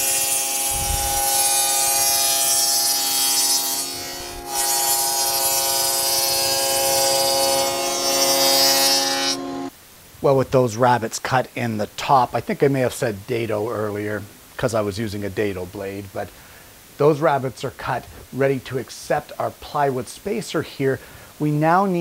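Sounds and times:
saw cutting hiss: 0:00.0 - 0:09.7
table saw motor running: 0:00.0 - 0:09.7.

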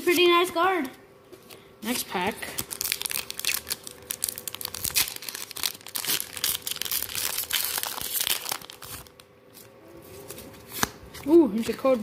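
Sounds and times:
foil wrapper crinkling and tearing: 0:02.4 - 0:09.3.

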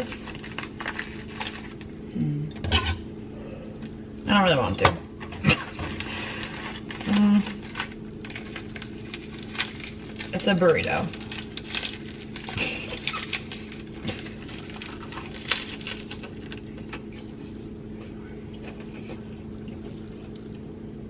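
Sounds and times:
nori sheet crinkling: 0:00.0 - 0:01.9, 0:05.8 - 0:17.6
steady low hum: 0:00.0 - 0:21.0.

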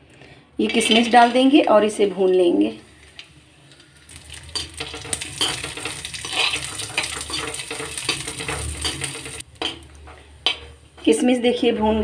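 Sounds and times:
metal spoon scraping and clinking: 0:00.6 - 0:01.5, 0:04.4 - 0:09.9
frying sizzle: 0:00.7 - 0:10.9.

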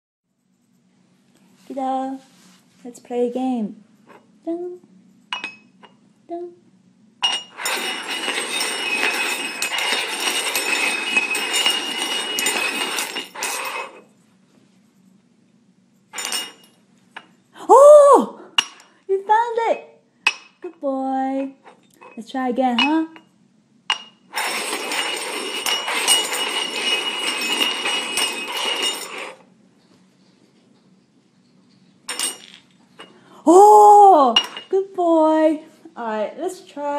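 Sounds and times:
metal cups scraping on wooden floor: 0:07.2 - 0:14.1, 0:16.2 - 0:16.8, 0:24.0 - 0:29.5, 0:31.4 - 0:33.2.

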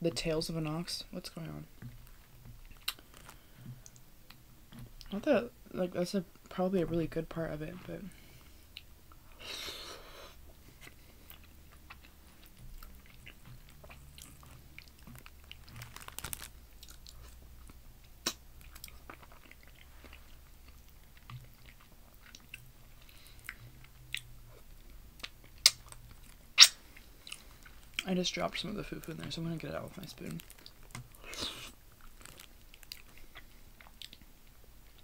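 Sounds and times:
person chewing: 0:02.0 - 0:05.1, 0:08.7 - 0:28.0, 0:30.3 - 0:35.0.

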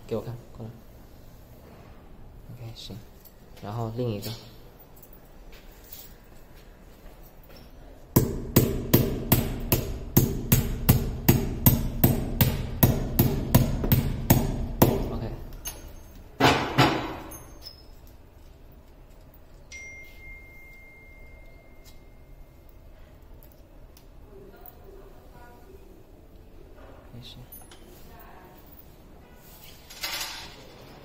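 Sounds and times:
hammer tapping: 0:08.2 - 0:15.2.

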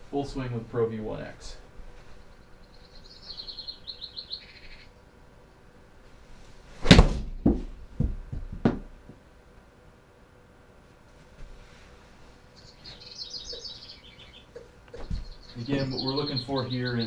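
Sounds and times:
high chirps: 0:02.2 - 0:04.9, 0:12.6 - 0:17.0
quiet knocks: 0:07.3 - 0:09.2, 0:14.6 - 0:15.4.

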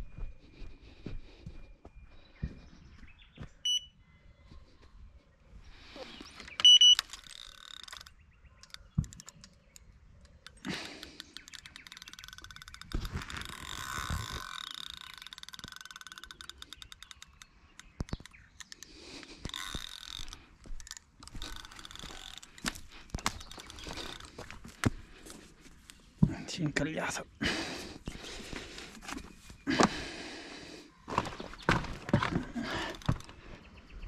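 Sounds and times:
bite alarm beep: 0:03.6 - 0:04.0, 0:06.6 - 0:07.1
fishing reel clicking: 0:06.6 - 0:24.4, 0:32.9 - 0:33.2.

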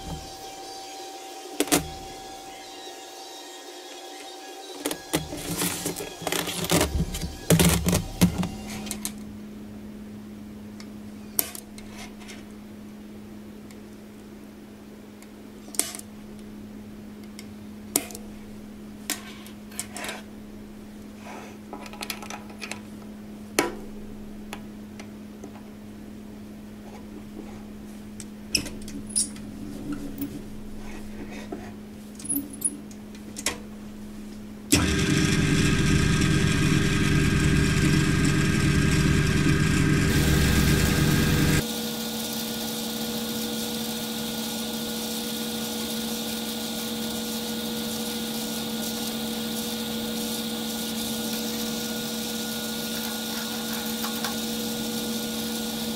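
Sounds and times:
drill press drilling: 0:04.8 - 0:09.0, 0:34.7 - 0:55.9
low hum: 0:22.9 - 0:41.6.

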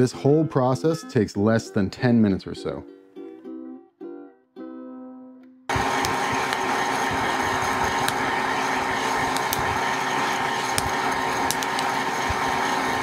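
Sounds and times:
coffee beans popping: 0:05.7 - 0:13.0
popcorn popper fan running: 0:05.7 - 0:13.0.

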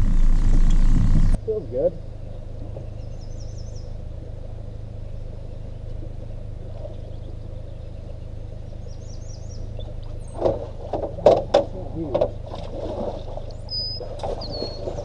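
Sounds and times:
bird chirping: 0:00.0 - 0:10.7, 0:13.4 - 0:15.0
low outdoor rumble: 0:00.0 - 0:15.0
fish splashing at surface: 0:12.4 - 0:15.0.

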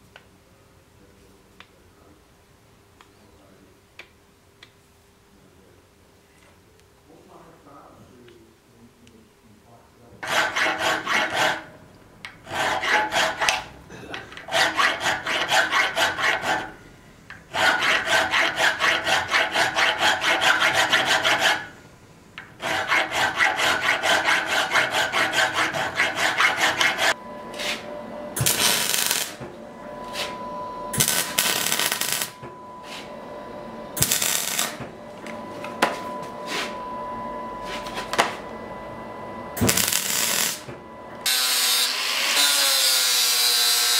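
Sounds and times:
file rasping on metal: 0:10.2 - 0:11.7, 0:12.5 - 0:13.7, 0:14.4 - 0:16.8, 0:17.5 - 0:21.7, 0:22.6 - 0:27.8
faint steady hum: 0:27.1 - 0:41.3.

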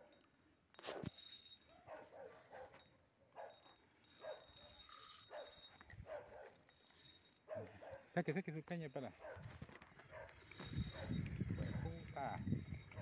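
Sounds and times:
faint dog barking: 0:07.5 - 0:08.2, 0:09.2 - 0:09.5, 0:10.1 - 0:10.4.

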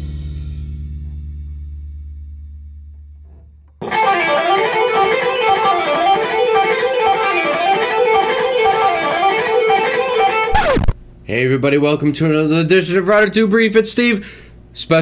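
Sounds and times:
electric guitar riff: 0:03.8 - 0:11.0.

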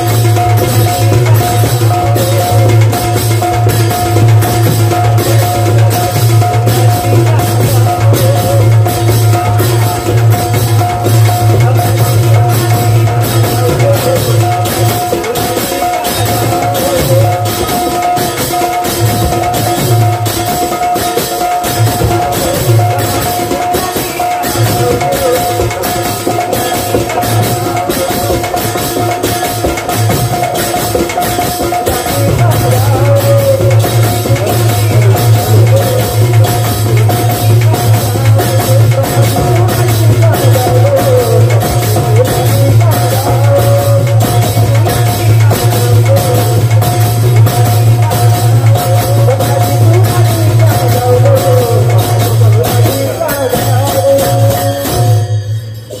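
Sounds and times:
hand drums fast rhythm: 0:00.0 - 0:56.0
person singing: 0:00.0 - 0:56.0
small hand cymbals jingling: 0:00.0 - 0:56.0.

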